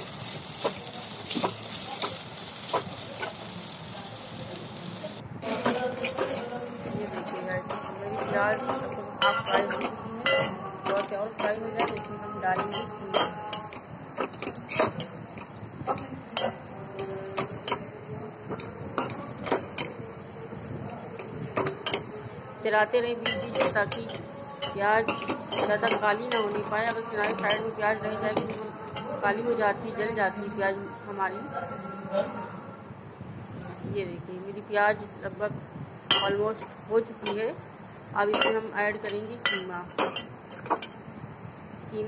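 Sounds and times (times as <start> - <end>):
onions sizzling in hot oil: 0.0 - 31.4, 33.3 - 42.0
ladle scraping and knocking pot: 7.1 - 16.6.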